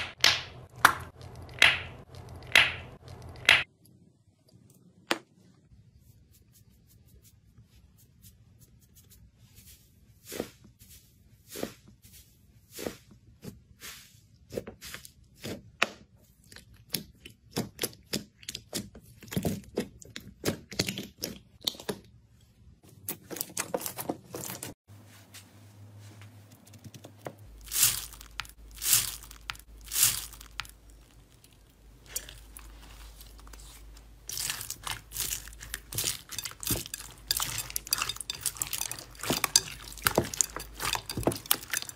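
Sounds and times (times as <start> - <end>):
slime crackling and popping: 27.6 - 32.9.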